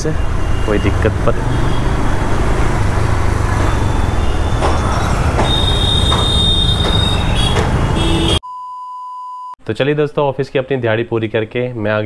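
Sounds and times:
road and wind noise: 0:00.0 - 0:08.4
high-pitched squeal: 0:03.3 - 0:08.2.

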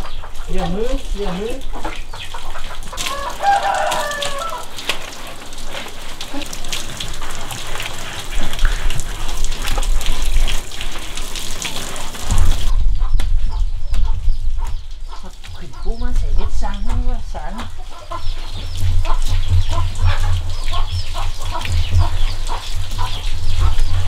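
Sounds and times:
chickens clucking: 0:00.0 - 0:08.9, 0:12.7 - 0:24.0
water from hose splashing: 0:00.0 - 0:24.0
rooster crowing: 0:03.0 - 0:04.8.

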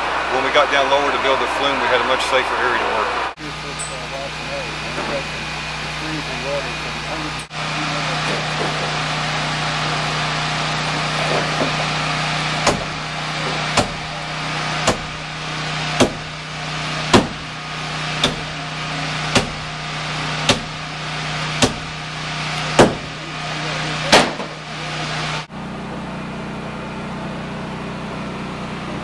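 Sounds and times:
machine hum and hiss: 0:00.0 - 0:29.0
sharp hammer blows: 0:12.6 - 0:14.1, 0:14.8 - 0:15.3, 0:16.0 - 0:16.4, 0:17.0 - 0:17.6, 0:18.2 - 0:18.6, 0:19.2 - 0:19.8, 0:20.4 - 0:20.9, 0:21.5 - 0:22.0, 0:22.7 - 0:23.2, 0:24.1 - 0:24.6.

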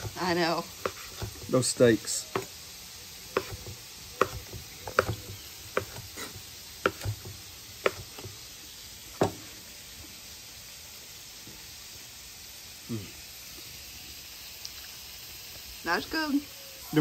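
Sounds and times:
knife chopping on cutting board: 0:00.8 - 0:01.5, 0:03.3 - 0:08.3.

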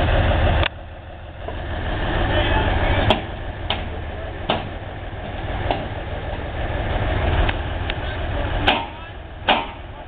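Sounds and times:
engine idling: 0:00.0 - 0:10.0
sharp knocks on metal rails: 0:03.1 - 0:05.9, 0:08.6 - 0:09.8.

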